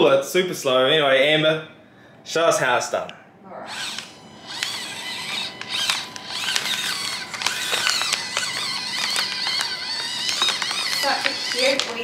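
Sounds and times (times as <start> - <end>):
small electric motor whining: 3.6 - 12.0
tyres crackling over paper: 4.0 - 12.0.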